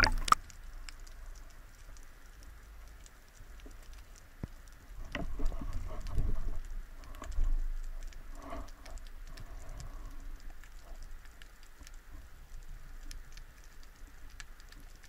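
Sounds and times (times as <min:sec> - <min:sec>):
water sloshing: 0:00.0 - 0:00.4
underwater clicking and patter: 0:00.0 - 0:15.0.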